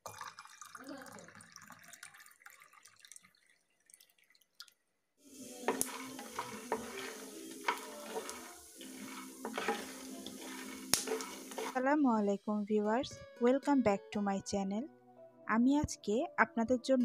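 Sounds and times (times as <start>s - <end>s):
water poured into a glass: 0.0s - 4.7s
spatula stirring peanuts in a pan: 5.3s - 11.8s
steady hiss: 5.3s - 11.8s.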